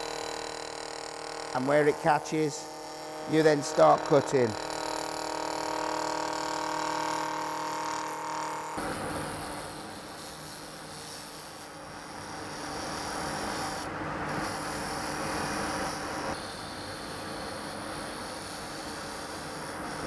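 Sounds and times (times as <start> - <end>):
gouge scraping wood on lathe: 0.0 - 8.6.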